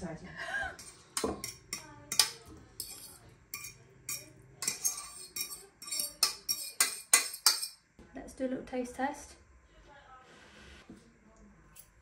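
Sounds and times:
metal utensil clinking on cookware: 0:00.8 - 0:07.8.

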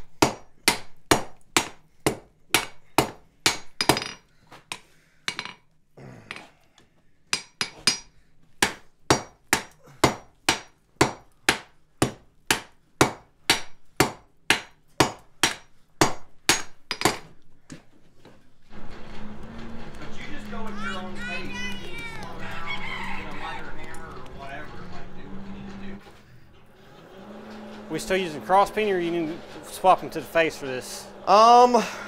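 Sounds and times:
hammer striking hot metal on anvil: 0:00.2 - 0:04.2, 0:07.3 - 0:17.2.

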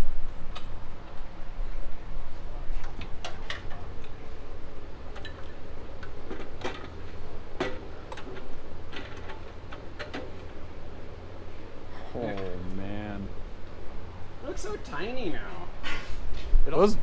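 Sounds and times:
low steady hum: 0:00.0 - 0:17.0
metal clicks and knocks: 0:05.1 - 0:10.5.

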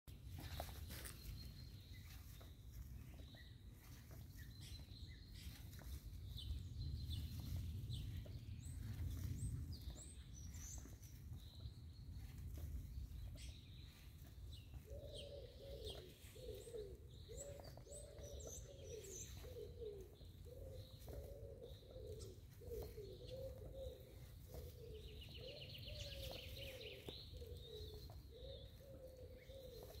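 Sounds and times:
small birds chirping: 0:00.1 - 0:30.0
wind rumble: 0:06.0 - 0:15.0
dove cooing: 0:14.7 - 0:30.0.

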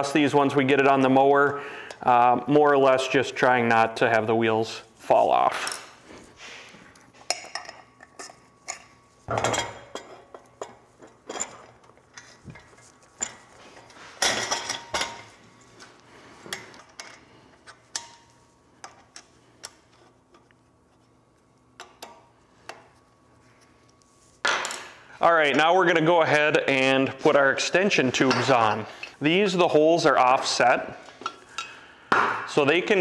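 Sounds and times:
metal parts clinking and knocking: 0:07.3 - 0:13.6.

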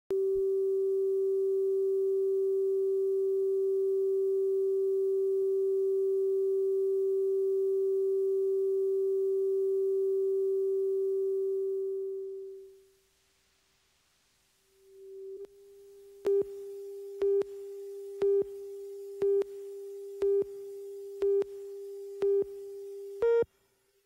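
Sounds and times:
steady pure test tone: 0:14.7 - 0:23.5.

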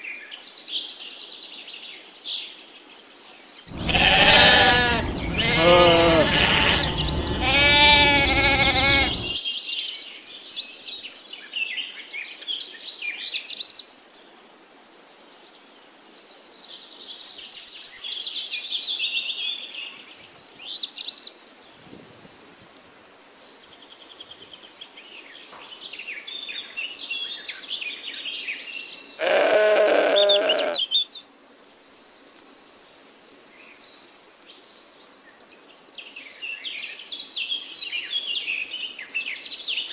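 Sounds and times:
birds chirping and trilling: 0:03.7 - 0:09.4, 0:29.2 - 0:31.0
goat kid bleating: 0:03.8 - 0:09.4, 0:29.2 - 0:30.8.

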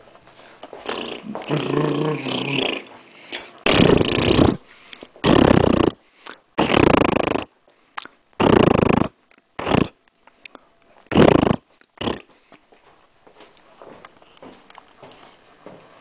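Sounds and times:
person making mouth noises: 0:00.8 - 0:12.4.

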